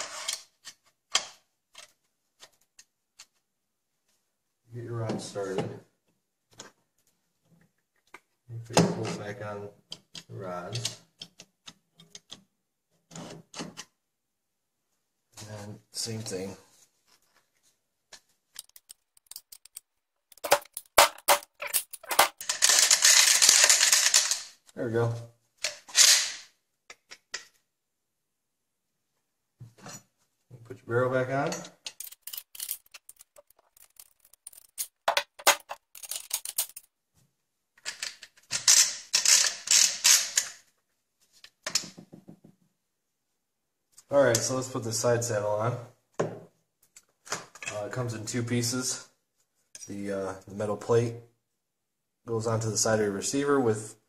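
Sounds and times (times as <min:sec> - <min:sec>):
rapid metal clatter: 0:18.6 - 0:22.8, 0:32.0 - 0:36.9
shotgun parts clicking: 0:18.6 - 0:23.8, 0:31.9 - 0:36.9.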